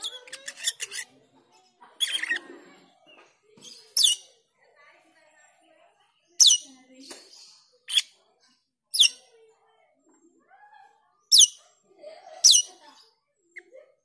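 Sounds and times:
soft low bird chattering: 0.0 - 4.4, 6.4 - 8.2, 8.9 - 9.3, 11.3 - 11.7.

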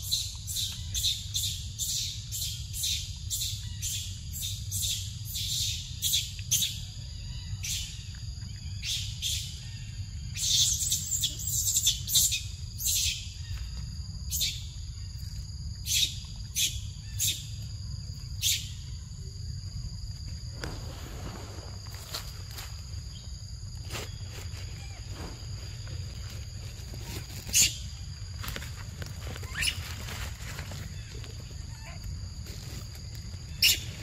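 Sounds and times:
high insect drone: 0.0 - 34.0.

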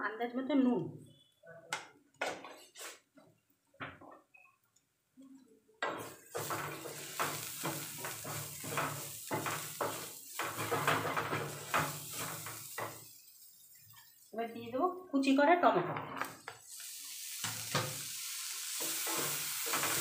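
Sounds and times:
spatula scraping frying pan: 5.8 - 13.2, 18.7 - 20.0
sizzle of frying: 5.8 - 15.3, 15.9 - 20.0.

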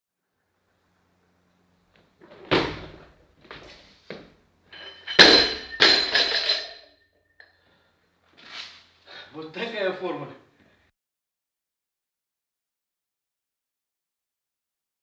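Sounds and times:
barbell crashing onto platform: 2.5 - 3.1, 4.8 - 6.8
bar and plates ringing: 4.7 - 7.0.

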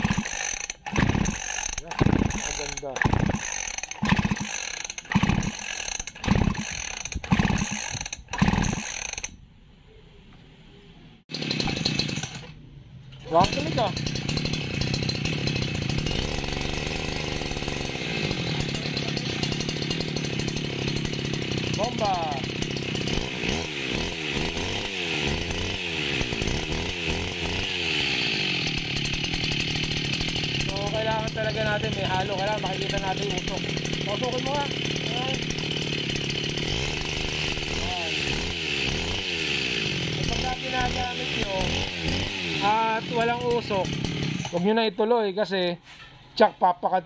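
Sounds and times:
two-stroke brush-cutter engine: 0.0 - 9.3, 11.3 - 12.6, 13.2 - 44.7
recoil starter pulls: 0.0 - 9.4, 11.3 - 44.8
engine spinning over freely: 2.0 - 8.9.

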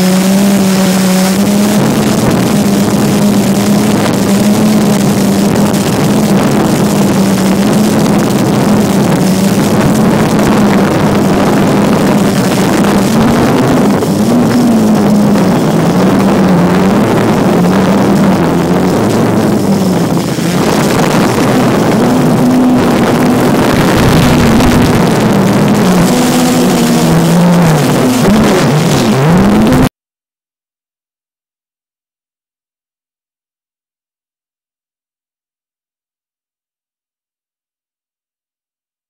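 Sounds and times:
drone propellers buzzing: 0.0 - 29.9.

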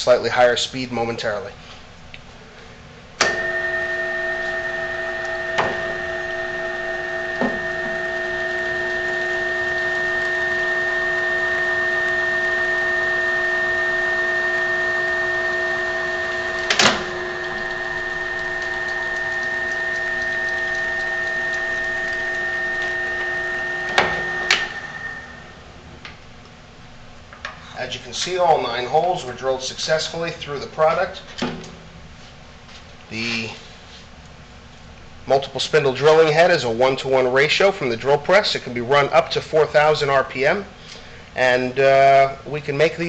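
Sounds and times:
drill press whining: 3.2 - 26.2.

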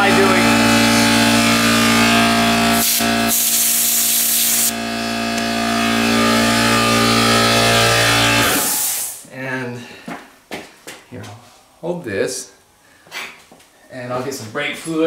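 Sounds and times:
air compressor humming: 0.0 - 9.2
air blow gun hissing: 2.6 - 4.8, 8.4 - 9.2.

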